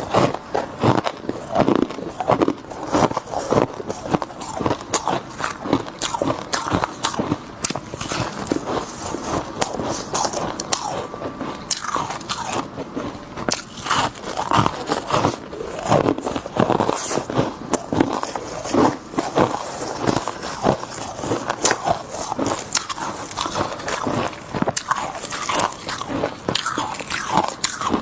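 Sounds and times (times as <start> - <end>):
crunching frost: 0.0 - 28.0.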